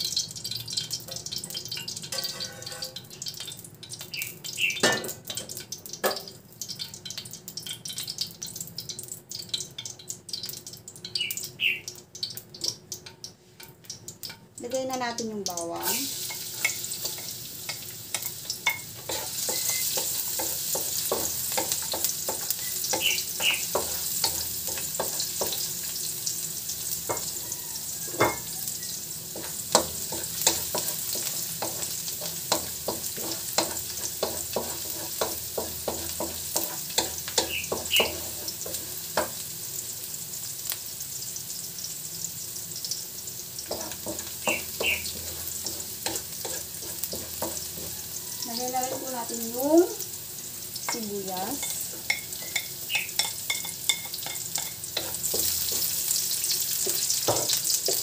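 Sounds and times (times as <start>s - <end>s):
garlic sizzling in hot oil: 0.0s - 58.0s
wooden spatula scraping a wok: 2.1s - 3.0s, 19.0s - 25.7s, 29.4s - 39.4s, 43.6s - 49.2s, 51.6s - 58.0s.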